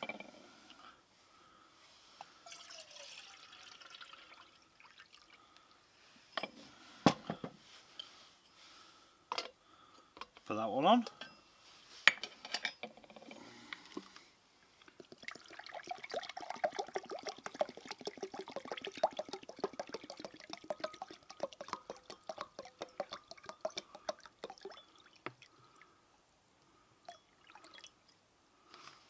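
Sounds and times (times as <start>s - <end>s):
water pouring into jug: 2.4s - 5.5s, 15.0s - 25.8s, 27.3s - 28.0s.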